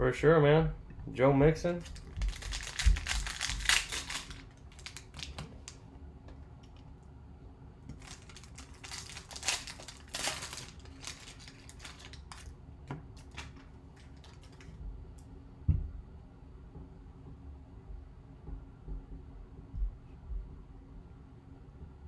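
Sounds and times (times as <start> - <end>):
plastic wrapper crinkling: 1.8 - 5.8, 7.9 - 14.8.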